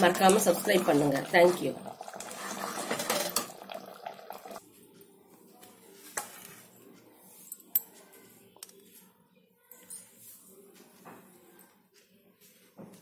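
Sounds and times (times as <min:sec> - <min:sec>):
metal ladle scraping a pot: 0:01.4 - 0:03.8.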